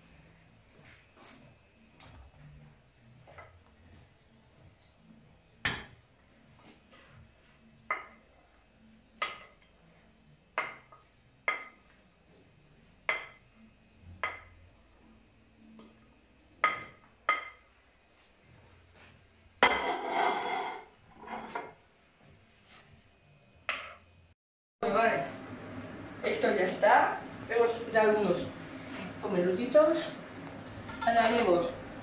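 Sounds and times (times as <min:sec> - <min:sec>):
wooden spoon knocking on ceramic plate: 0:13.1 - 0:13.4.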